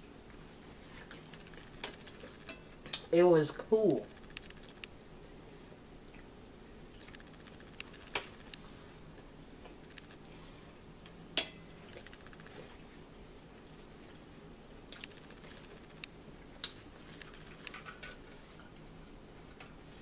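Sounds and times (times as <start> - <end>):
faint steady hum: 0.0 - 20.0
small clicks and taps: 4.1 - 4.9.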